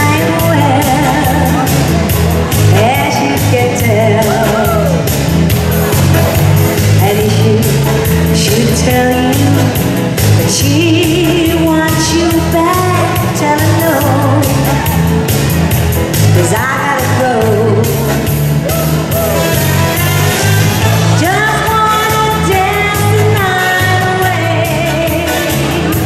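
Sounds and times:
woman singing into microphone: 0.0 - 1.8, 2.7 - 5.0, 7.0 - 9.8, 10.4 - 14.9, 16.4 - 18.3, 21.0 - 26.0
amplified pop music: 0.0 - 26.0.

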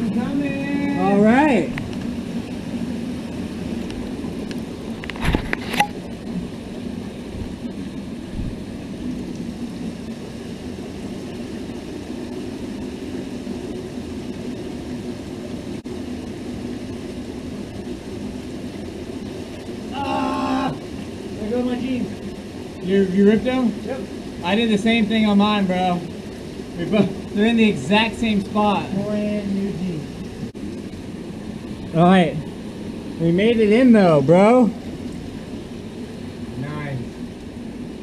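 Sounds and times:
stream running over rock: 0.0 - 38.0.

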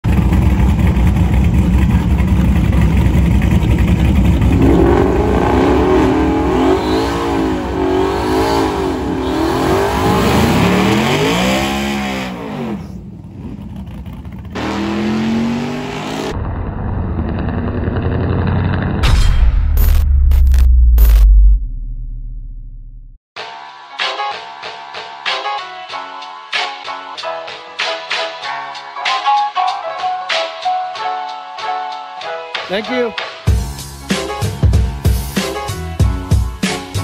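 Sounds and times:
car engine revving: 0.1 - 19.1.

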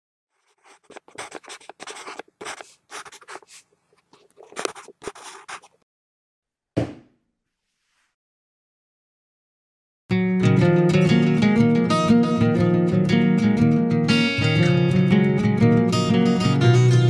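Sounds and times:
marker scratching on paper: 0.4 - 5.8
rubber stamp thump: 6.8 - 7.1.

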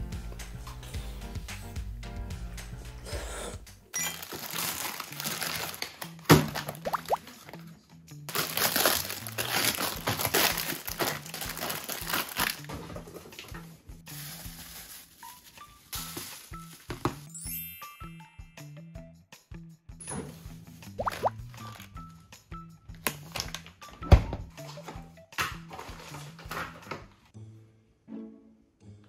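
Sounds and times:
light background music: 0.0 - 29.0
plastic packaging crinkling: 4.0 - 7.6, 8.3 - 12.8, 14.1 - 17.1.

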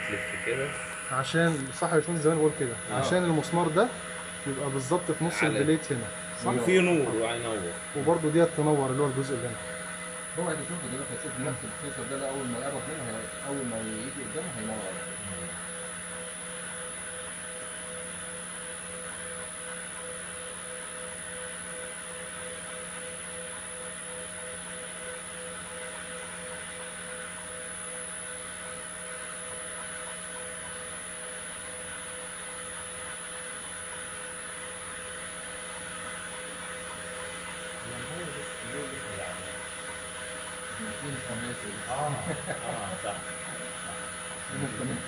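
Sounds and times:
pumps humming and hissing: 0.0 - 45.0.

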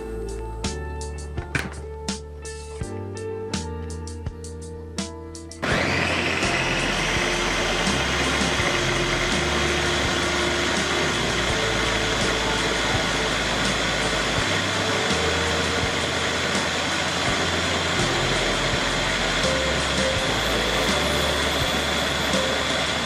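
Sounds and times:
background music with bass line: 0.0 - 23.0
mini chopper motor whirring: 5.6 - 23.0.

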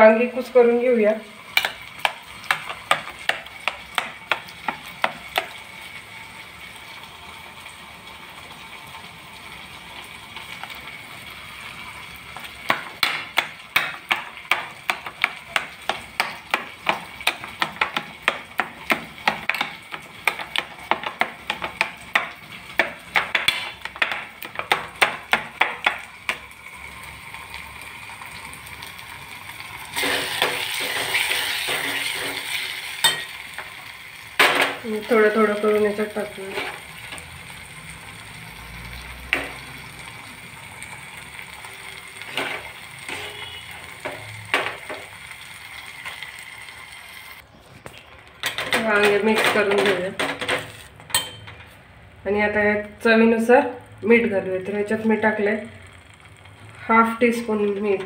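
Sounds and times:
frying sizzle: 0.0 - 58.0
spoon clinking on steel plate: 51.1 - 51.6.

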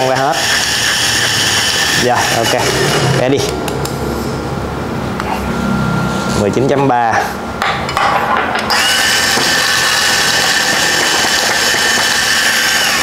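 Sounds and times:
coffee grinder whining: 0.0 - 3.3, 8.7 - 13.0.

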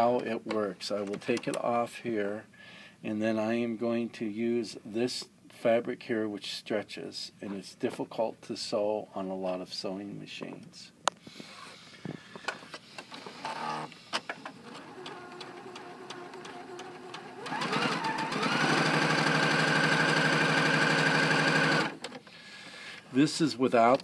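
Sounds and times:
sewing machine stitching: 13.0 - 22.2.

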